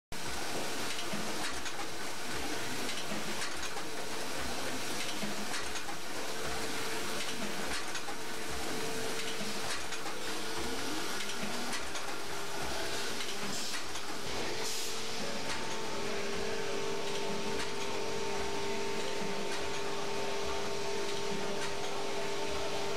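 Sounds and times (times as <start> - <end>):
machine hiss and hum: 0.2 - 22.9
machine clicks and knocks: 2.8 - 6.0, 17.0 - 18.0.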